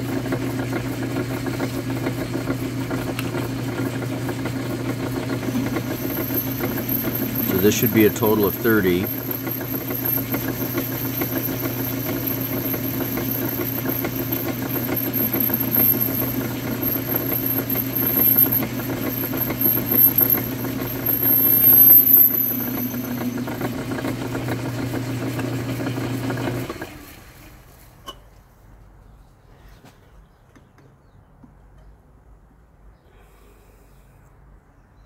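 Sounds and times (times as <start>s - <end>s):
metal lathe humming: 4.8s - 26.9s.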